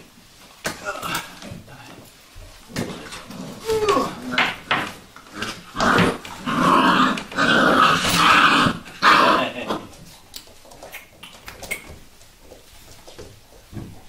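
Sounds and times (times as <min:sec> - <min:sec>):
puppies growling: 0:02.7 - 0:10.2.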